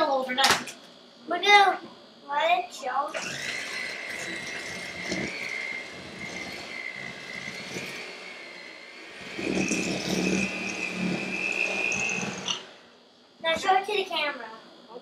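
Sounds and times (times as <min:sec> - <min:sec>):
electric hand mixer whining: 0:03.1 - 0:12.9.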